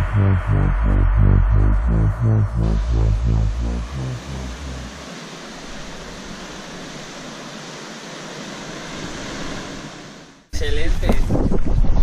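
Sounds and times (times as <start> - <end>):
electronic dance music: 0.0 - 5.6
ocean surf rushing: 2.3 - 10.6.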